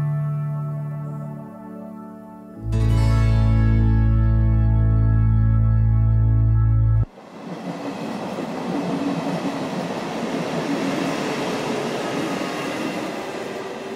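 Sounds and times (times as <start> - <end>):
background music: 0.0 - 7.1
electric train running past: 7.0 - 13.9.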